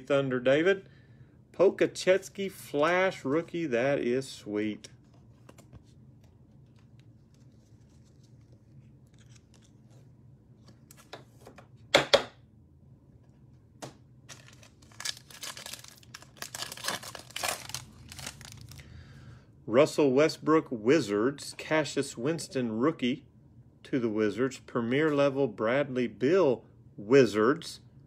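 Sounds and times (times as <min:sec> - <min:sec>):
light card handling: 0:04.7 - 0:11.7
foil wrapper tearing and crinkling: 0:14.3 - 0:18.8.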